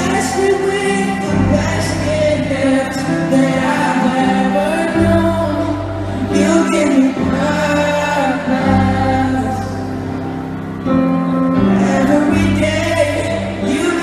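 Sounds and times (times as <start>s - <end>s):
man singing pop ballad: 0.0s - 10.2s, 11.5s - 14.0s
audience singing along: 0.0s - 14.0s
keyboard chords: 0.0s - 14.0s.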